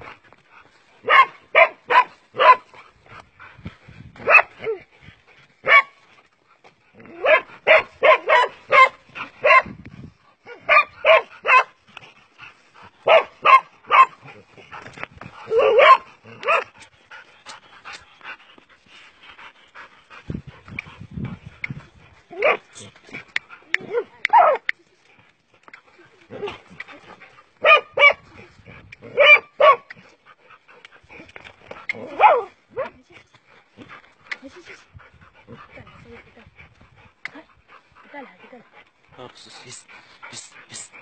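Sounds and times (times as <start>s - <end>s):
dog barking: 1.0s - 2.6s, 4.2s - 4.5s, 5.6s - 5.9s, 7.2s - 9.7s, 10.5s - 11.7s, 13.0s - 14.2s, 15.5s - 16.7s, 23.8s - 24.6s, 27.6s - 28.2s, 29.1s - 29.8s, 32.2s - 32.5s.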